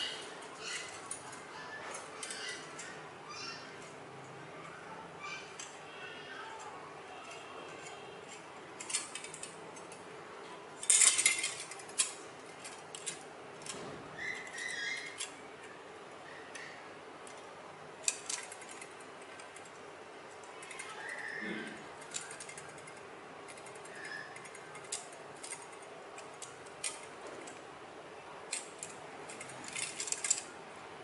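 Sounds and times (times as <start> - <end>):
metal can strips clicking and crinkling: 7.1 - 10.0, 10.8 - 15.7, 16.5 - 27.6, 28.5 - 30.5.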